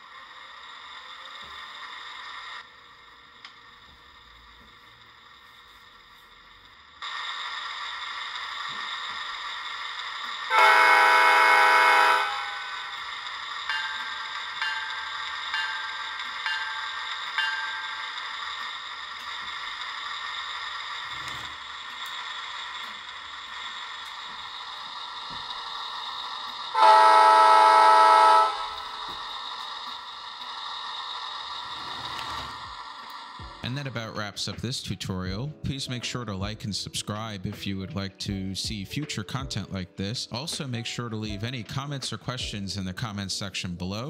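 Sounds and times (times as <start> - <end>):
droning engine sound: 0.0 - 34.0
train horn blast through speaker: 10.5 - 12.9, 26.7 - 29.0.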